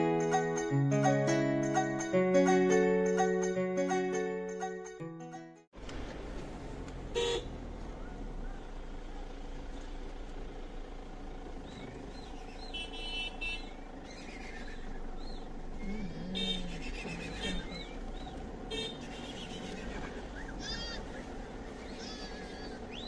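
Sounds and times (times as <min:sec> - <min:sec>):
road hum: 0:00.0 - 0:23.0
car engine running: 0:05.8 - 0:23.0
car horn toots: 0:07.1 - 0:07.5, 0:12.7 - 0:13.8, 0:16.4 - 0:17.7, 0:18.7 - 0:19.6
sheep or goats bleating: 0:15.9 - 0:17.7, 0:22.0 - 0:22.8.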